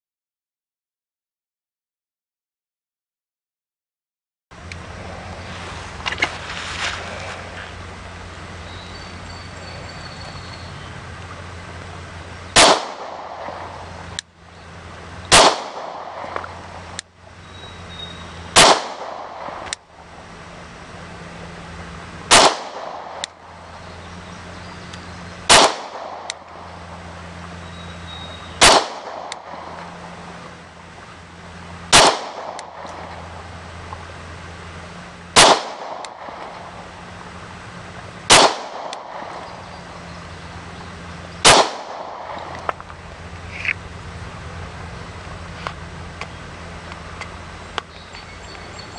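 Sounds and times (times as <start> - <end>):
pistol shots: 12.6 - 13.8, 15.3 - 16.6, 18.5 - 19.7, 22.3 - 23.2, 25.5 - 26.5, 28.6 - 29.8, 31.9 - 33.0, 35.4 - 36.7, 38.3 - 39.5, 41.4 - 42.5.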